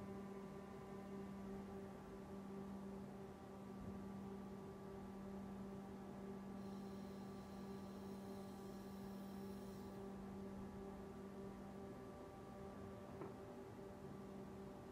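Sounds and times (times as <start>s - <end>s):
lathe electrical hum: 0.0s - 13.0s
faint high whine of tool turret: 6.1s - 13.4s.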